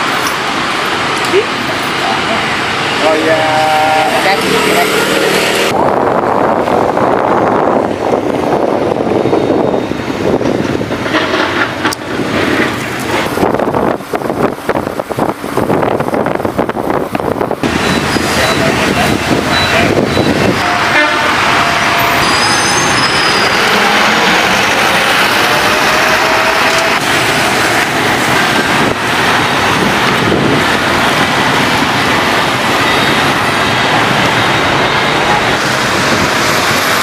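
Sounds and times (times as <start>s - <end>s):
cars passing: 0.0s - 9.2s, 10.1s - 37.0s
motorbikes passing: 1.1s - 5.8s.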